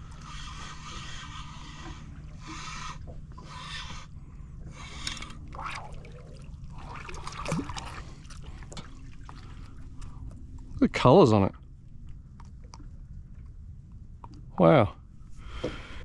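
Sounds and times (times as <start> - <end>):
steady low hum: 0.0 - 16.0
water trickling and dripping: 5.5 - 14.5.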